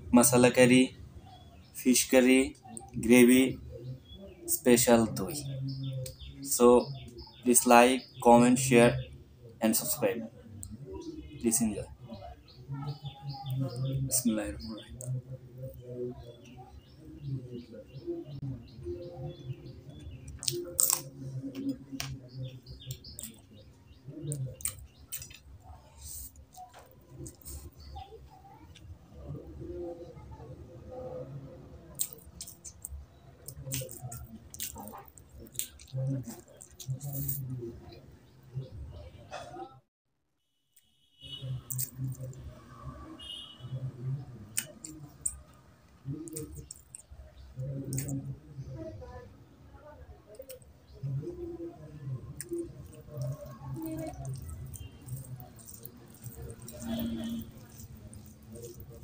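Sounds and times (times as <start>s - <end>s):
wet chewing smacks: 19.9s - 23.5s, 24.3s - 28.0s, 31.9s - 37.5s, 44.5s - 48.2s, 52.1s - 59.0s.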